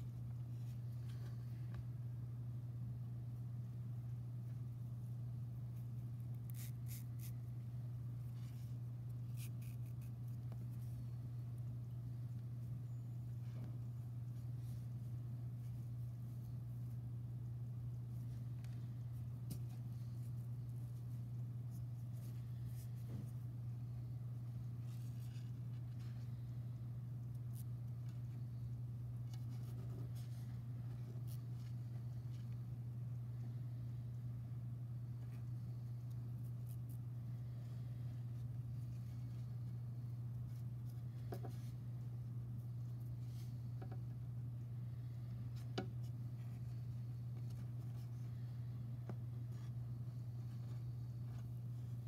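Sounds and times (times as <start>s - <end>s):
steady low hum: 0.0s - 52.0s
cord rustling and scratching: 27.3s - 32.8s, 45.2s - 52.0s.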